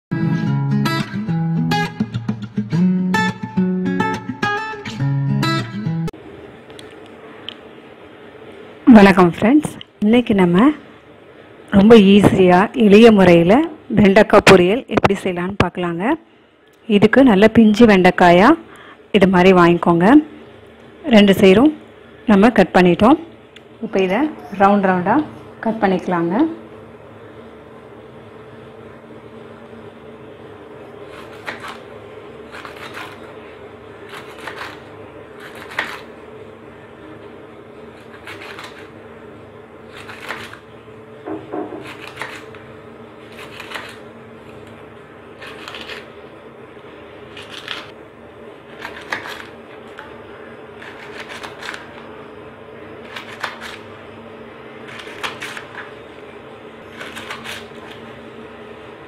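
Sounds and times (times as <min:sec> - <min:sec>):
faint steady hum: 0:00.2 - 0:59.0.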